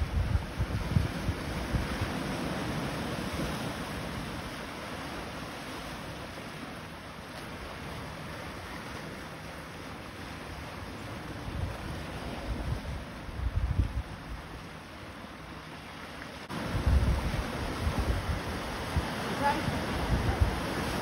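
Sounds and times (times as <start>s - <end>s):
wind buffeting microphone: 0.0s - 4.5s, 11.1s - 14.6s, 16.5s - 21.0s
surf washing over rocks: 0.0s - 21.0s.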